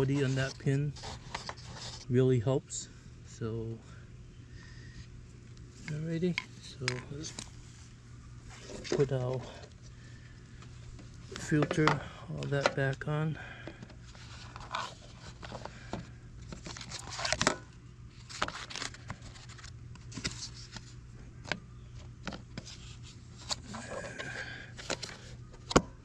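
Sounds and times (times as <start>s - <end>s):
plastic scraping and clicking: 11.3s - 13.0s, 23.4s - 25.9s.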